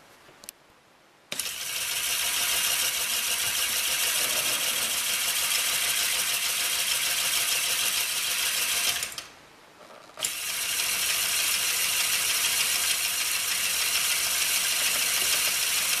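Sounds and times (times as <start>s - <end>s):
electric motor whirring: 10.2s - 16.0s.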